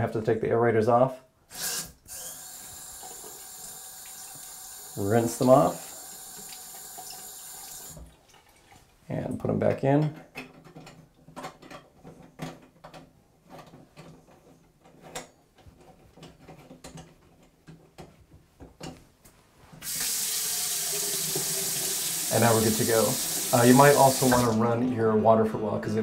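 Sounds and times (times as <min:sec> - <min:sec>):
water running into sink: 0:02.5 - 0:08.7, 0:19.8 - 0:24.6.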